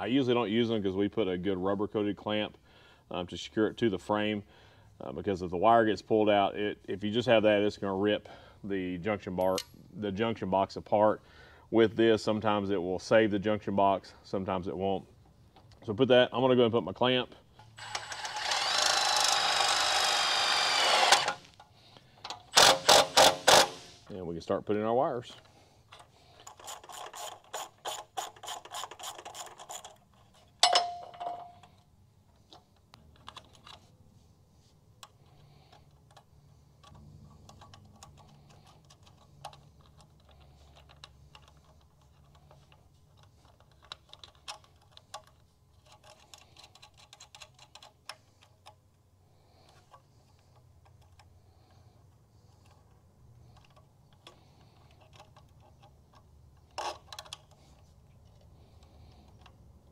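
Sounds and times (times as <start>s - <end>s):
socket ratchet clicking: 22.3s - 24.0s
small clicks of nuts handled: 24.7s - 34.0s, 35.0s - 59.9s
sharp metallic clink: 30.6s - 31.6s.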